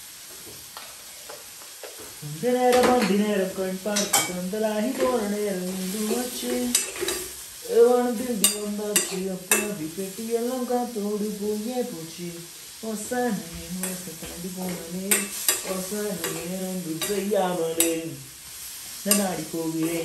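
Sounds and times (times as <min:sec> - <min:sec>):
faint frying sizzle: 0:00.0 - 0:20.0
man humming a tune: 0:02.2 - 0:06.8, 0:07.6 - 0:18.3
metal spoon clinking in a wok: 0:08.4 - 0:09.7, 0:14.7 - 0:17.2.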